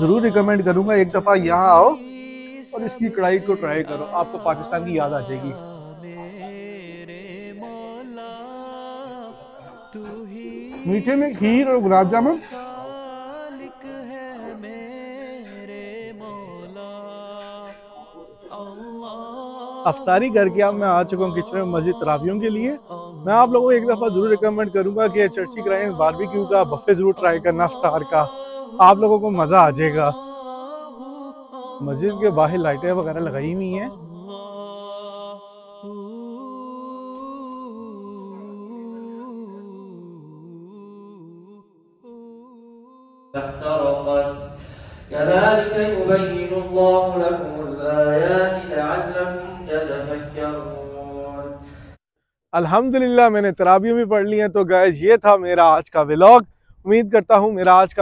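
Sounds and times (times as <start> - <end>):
person singing long notes: 0.0 - 43.7.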